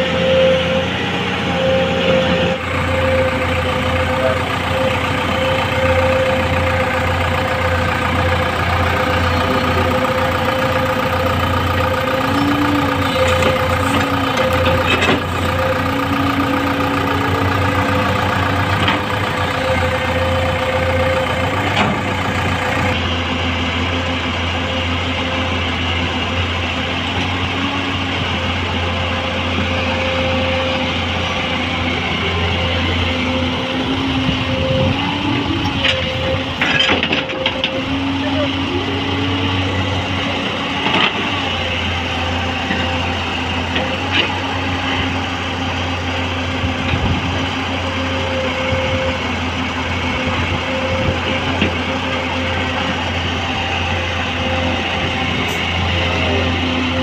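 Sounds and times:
hydraulic whines: 0.0 - 23.1
excavator diesel engine running: 0.0 - 57.0.

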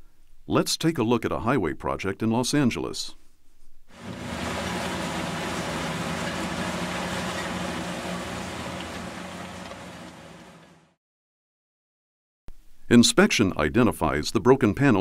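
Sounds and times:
broad noisy rush: 4.0 - 10.8
machinery engine hum: 4.0 - 11.0.

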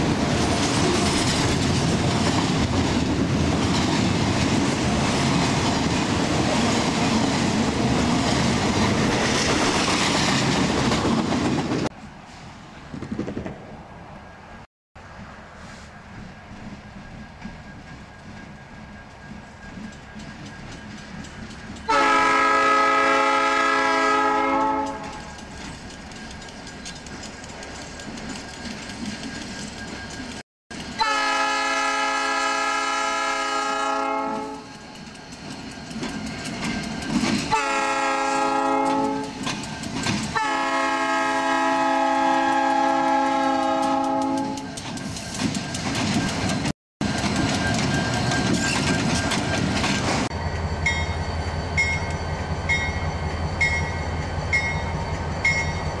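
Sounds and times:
wheels clattering on rail joints: 0.0 - 11.9, 16.0 - 22.1, 24.6 - 31.0, 34.6 - 40.6, 42.4 - 56.0
locomotive air horn blasts: 21.9 - 25.2, 31.0 - 34.6, 37.5 - 39.4, 40.4 - 44.7.

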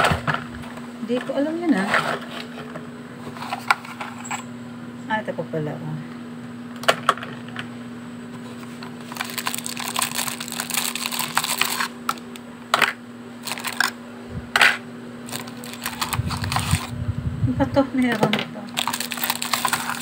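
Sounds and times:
rummaging and rustling: 1.1 - 4.4, 8.4 - 12.2, 13.4 - 14.0, 15.3 - 16.9, 18.7 - 20.0
low hum: 7.4 - 20.0.

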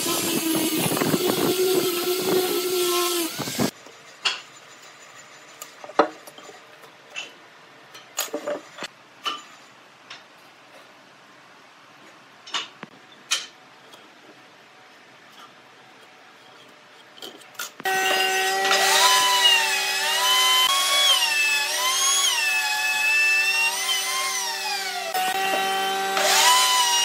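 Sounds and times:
angle grinder sanding wood: 0.0 - 3.8, 17.8 - 27.0.

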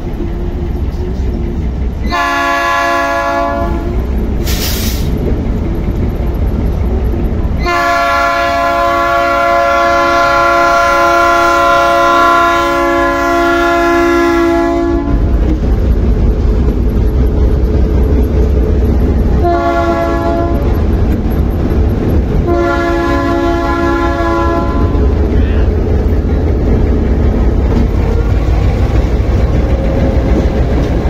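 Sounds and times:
locomotive air horn blasts: 2.0 - 4.0, 7.6 - 15.3, 19.4 - 20.7, 22.4 - 25.7
low rumble: 14.9 - 31.0.

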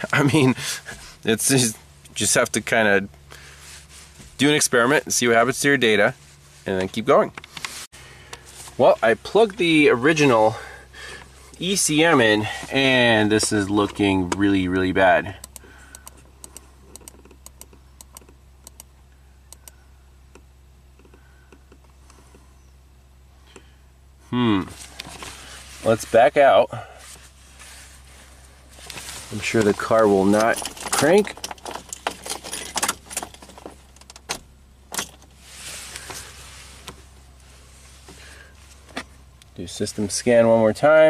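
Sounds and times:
steady low hum: 0.0 - 41.0
soft rustle: 3.2 - 4.5, 6.1 - 6.8, 7.5 - 9.5, 24.6 - 34.0, 35.3 - 40.1
ignition key clicks: 15.4 - 18.9, 19.5 - 22.2.

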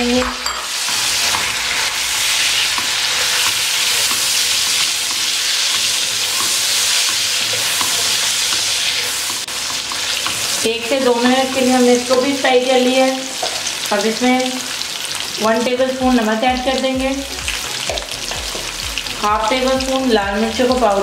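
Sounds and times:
food sizzling in hot oil: 0.0 - 21.0
spatula scraping a wok: 0.6 - 12.5.

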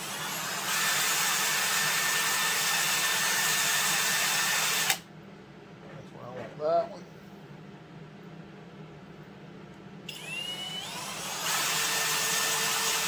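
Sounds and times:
cordless drill whining: 0.0 - 5.0, 10.1 - 13.0.

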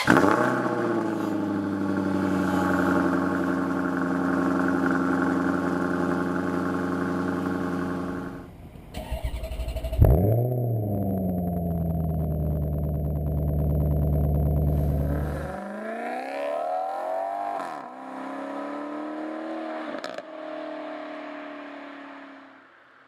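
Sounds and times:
engine starting with rev flare: 0.0 - 1.7, 8.9 - 11.8
car engine idling: 0.0 - 15.6.

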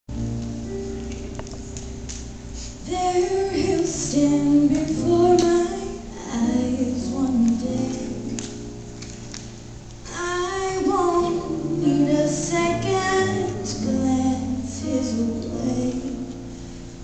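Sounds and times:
guitar: 0.1 - 17.0
piano: 0.1 - 17.0
woman singing a slow ballad: 2.8 - 8.4, 10.1 - 16.4.

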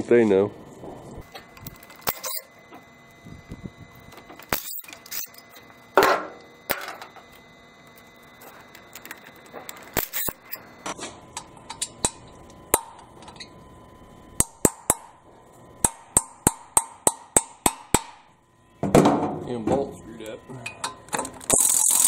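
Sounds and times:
hammer tapping metal: 15.8 - 18.2.

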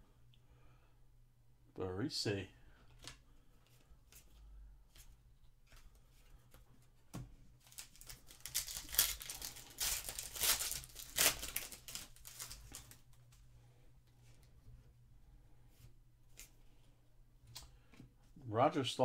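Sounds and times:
foil wrapper tearing and crinkling: 7.6 - 13.0.

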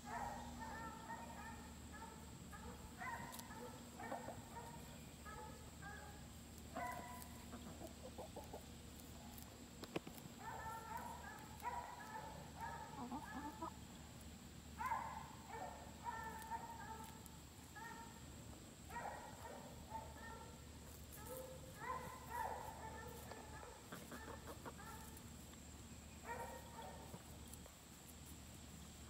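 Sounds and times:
hens clucking: 6.4 - 9.5, 11.0 - 13.9, 23.1 - 25.2.

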